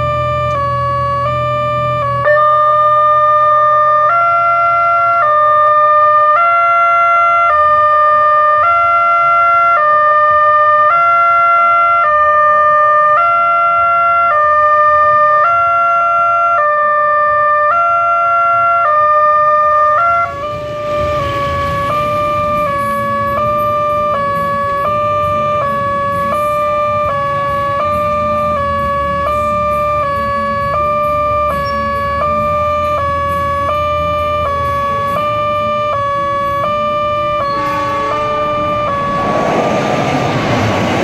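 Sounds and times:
motorcycle traffic: 0:19.7 - 0:28.8, 0:30.4 - 0:41.0.

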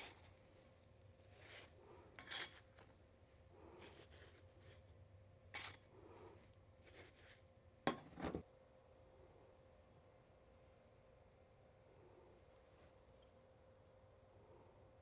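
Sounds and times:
kitchen utensil scraping: 0:01.2 - 0:02.9, 0:05.6 - 0:05.9, 0:06.8 - 0:08.4.

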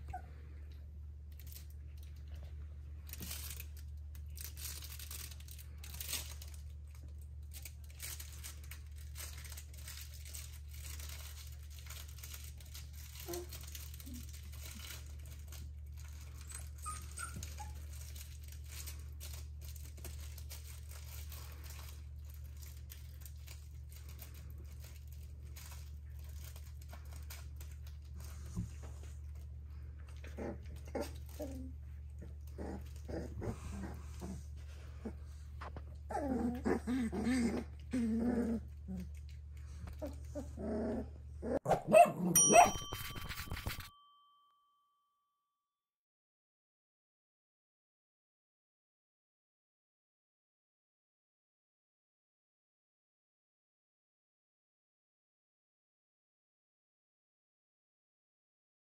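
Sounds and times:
crinkle toys rustling: 0:00.5 - 0:40.9, 0:42.4 - 0:43.9
puppy squeaks and whimpers: 0:16.3 - 0:18.2, 0:41.5 - 0:43.9.

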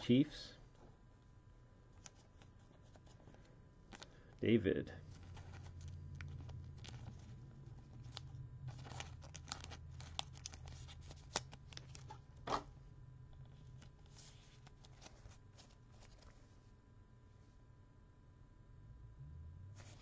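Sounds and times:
low steady hum: 0:00.0 - 0:20.0
plastic sleeve crinkling: 0:05.0 - 0:12.2.

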